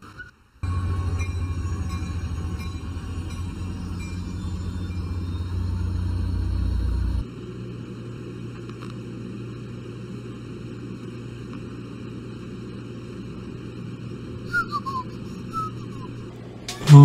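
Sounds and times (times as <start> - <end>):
train rumble inside carriage: 0.6 - 7.3, 14.4 - 17.0.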